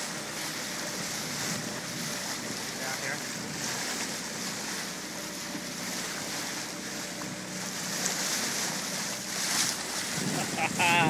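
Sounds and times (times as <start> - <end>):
water rushing along boat hull: 0.0 - 11.0
wind on microphone: 9.6 - 11.0.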